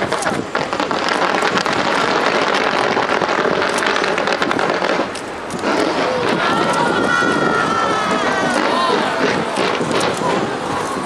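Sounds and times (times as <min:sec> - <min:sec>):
fireworks crackling and popping: 0:00.0 - 0:11.0.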